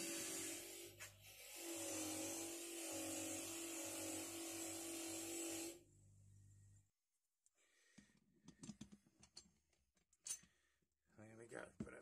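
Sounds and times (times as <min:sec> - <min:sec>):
metal parts clicking and knocking: 0:08.4 - 0:10.6.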